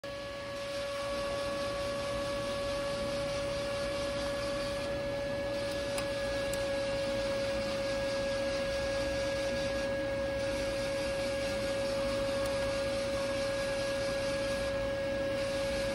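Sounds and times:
steady electronic whine: 0.0 - 15.9.

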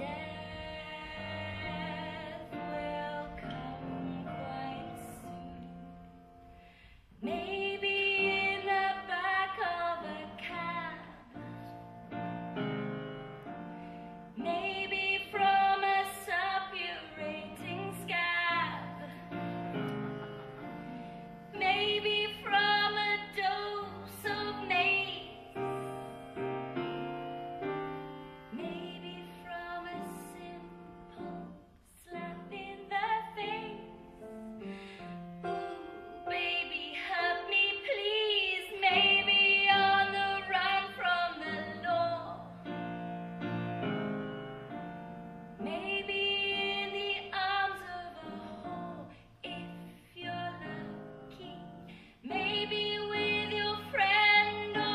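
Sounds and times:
woman singing: 0.0 - 5.8, 7.2 - 11.6, 14.4 - 20.2, 21.5 - 26.1, 28.4 - 34.1, 35.5 - 42.6, 45.6 - 54.9
piano accompaniment: 0.0 - 54.9.

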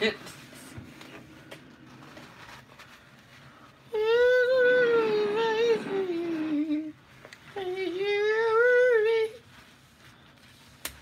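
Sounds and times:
person humming: 3.9 - 9.4.

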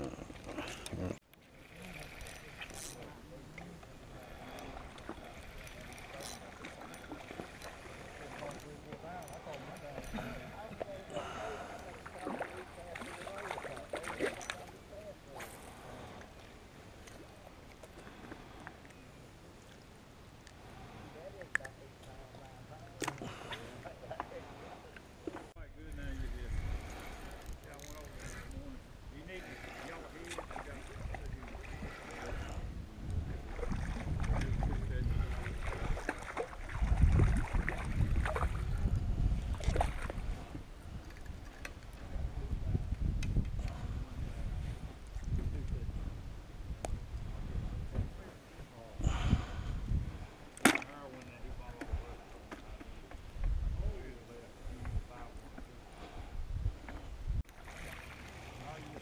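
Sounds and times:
wind rumbling on microphone: 25.5 - 29.4, 30.0 - 50.5, 51.4 - 59.0.

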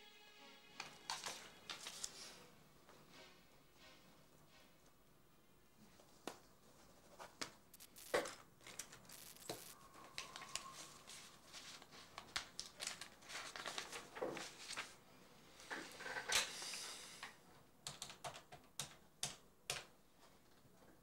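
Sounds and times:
paper rustling and crinkling: 1.0 - 2.4, 7.1 - 15.0.

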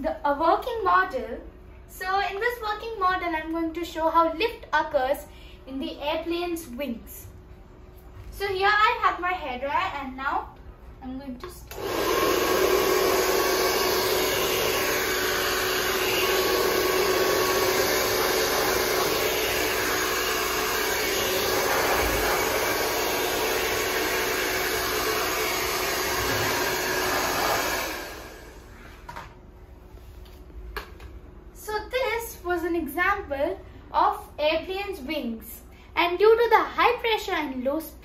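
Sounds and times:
hair dryer running: 11.7 - 29.4.

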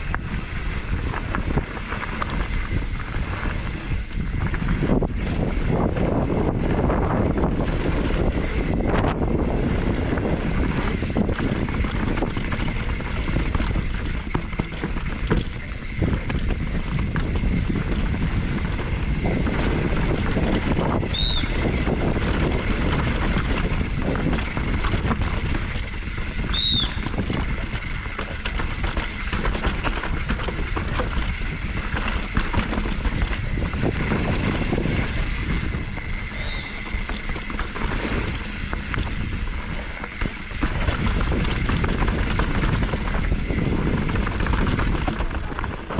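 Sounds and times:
mountain bike rattling over rocks: 0.0 - 45.9
wind on microphone: 0.0 - 45.9
brief high squeaks: 36.4 - 36.8.

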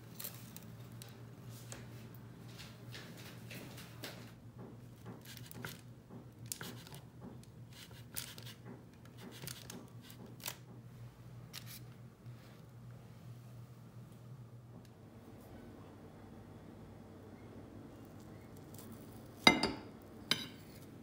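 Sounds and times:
faint low hum: 10.3 - 21.0.

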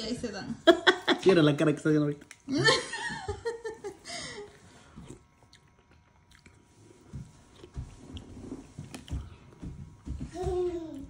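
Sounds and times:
person chewing: 2.2 - 2.5, 4.5 - 9.6.

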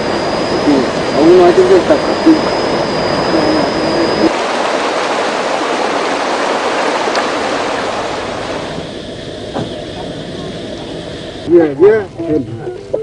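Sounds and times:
river rushing over rapids: 4.3 - 8.7.

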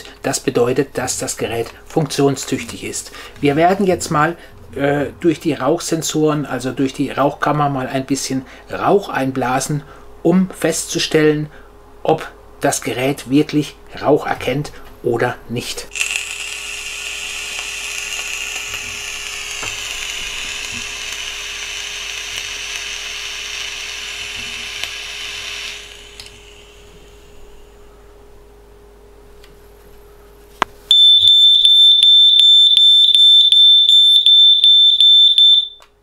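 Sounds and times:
smoke alarm beeping: 30.9 - 36.0.

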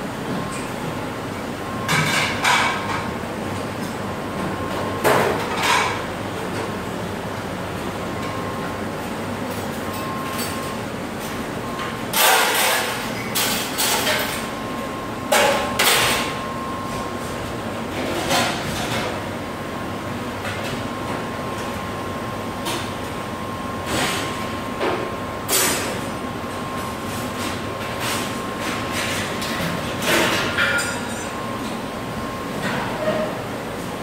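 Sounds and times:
dishwasher wash noise: 1.8 - 6.8, 11.7 - 14.5, 15.3 - 19.3, 23.9 - 31.9
dishes and racks clattering: 1.9 - 3.2, 4.4 - 6.8, 11.8 - 14.5, 15.3 - 16.4, 17.9 - 19.2, 27.4 - 31.7, 32.6 - 33.4.

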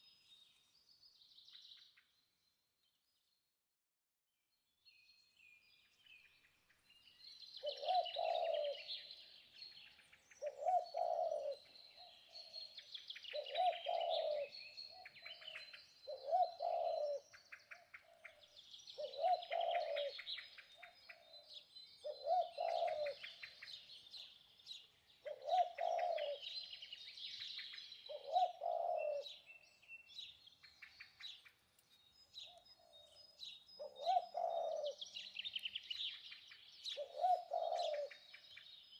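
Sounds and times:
small birds chirping: 4.9 - 38.9
dove cooing: 7.6 - 9.1, 10.4 - 12.6, 13.3 - 18.4, 19.0 - 23.8, 25.2 - 26.8, 28.1 - 29.4, 33.8 - 35.5, 36.9 - 38.3.

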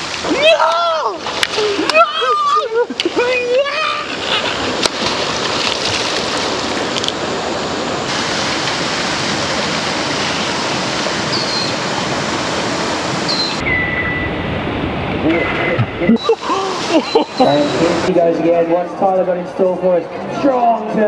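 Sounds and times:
flowing water rushing: 0.0 - 18.7
faint high whistles: 13.3 - 14.3.

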